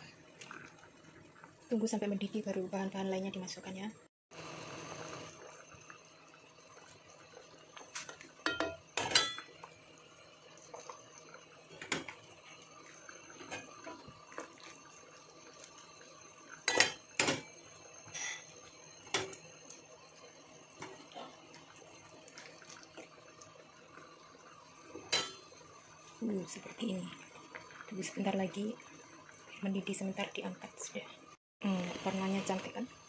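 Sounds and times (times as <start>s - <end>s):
broth simmering: 0.0s - 33.0s
utensils clinking against steel pan: 8.4s - 9.5s.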